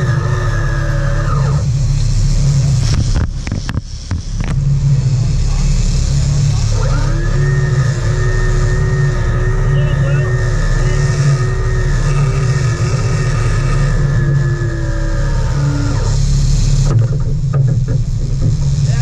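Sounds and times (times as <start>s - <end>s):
boat engines humming: 0.0s - 19.0s
steady whine: 0.0s - 19.0s.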